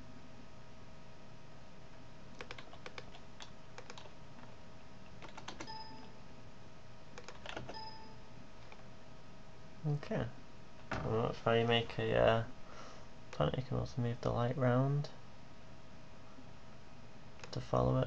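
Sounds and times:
faint steady hum: 0.0s - 18.0s
keyboard and mouse clicking: 2.3s - 4.1s, 5.2s - 6.1s, 7.2s - 7.9s, 17.4s - 17.6s.

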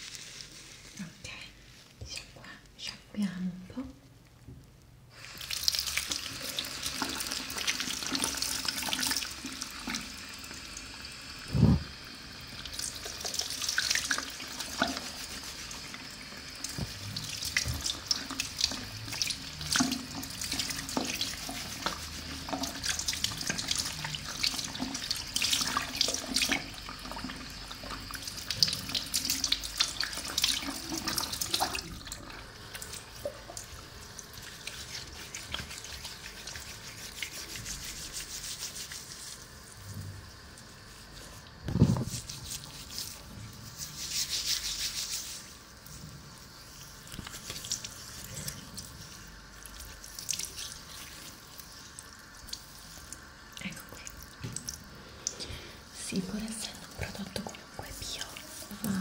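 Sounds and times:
tap water splashing into basin: 16.6s - 33.8s, 54.3s - 55.4s.

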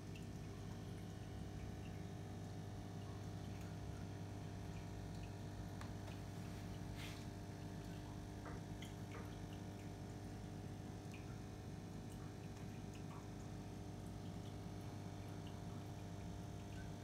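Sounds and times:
aquarium equipment humming: 0.0s - 17.0s
water dripping: 0.0s - 17.0s.

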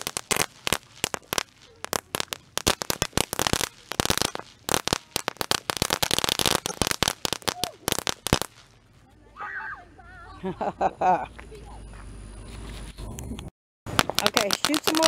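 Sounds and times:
firecrackers cracking: 0.0s - 9.1s, 13.9s - 15.0s.

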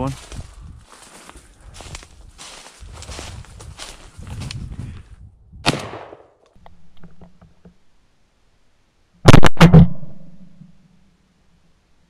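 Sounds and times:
shotgun blasts: 5.6s - 6.4s.

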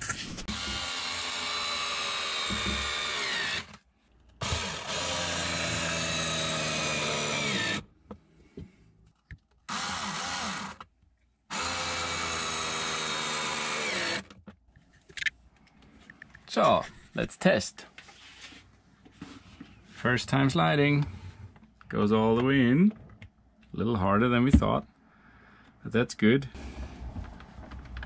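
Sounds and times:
cordless drill driving screws: 0.5s - 3.8s, 4.4s - 7.9s, 9.7s - 10.8s, 11.5s - 14.4s.

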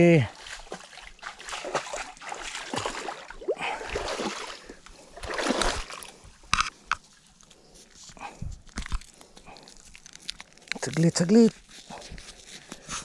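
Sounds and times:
water splashing and sloshing: 0.0s - 7.6s.

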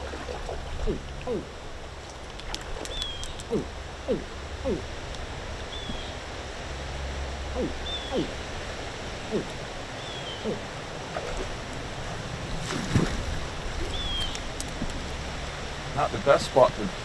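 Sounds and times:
water splashing: 0.0s - 17.0s
short low calls: 0.3s - 1.6s, 3.4s - 5.0s, 7.4s - 8.5s, 9.2s - 9.7s, 10.3s - 10.7s
bird whistling: 7.6s - 8.4s.

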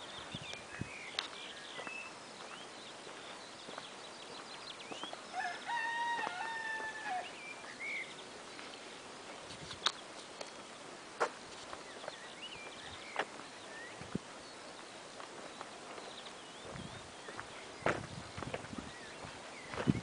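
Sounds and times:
small birds chirping: 0.0s - 20.0s
rooster crowing: 5.3s - 7.4s.

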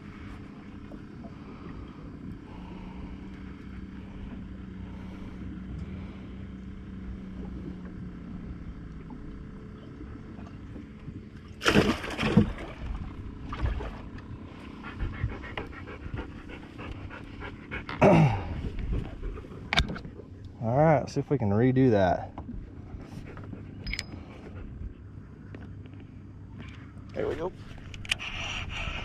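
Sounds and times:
steady low hum: 0.0s - 29.0s
dog panting: 14.8s - 18.0s.

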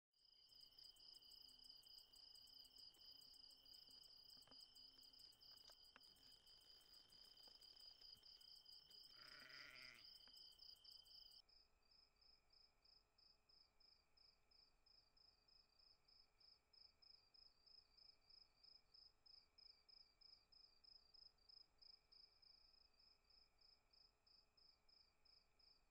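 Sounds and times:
crickets chirping: 0.2s - 11.4s.

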